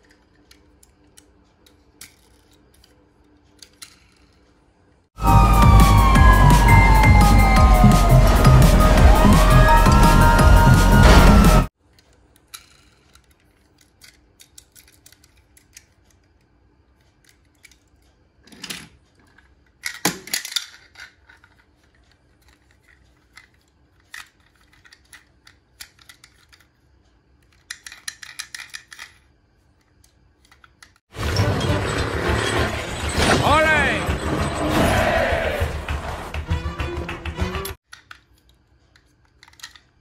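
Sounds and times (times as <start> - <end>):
toy cars clicking and rattling: 0.0 - 5.0, 11.8 - 31.1, 37.8 - 40.0
loud abrupt sound: 5.2 - 11.7.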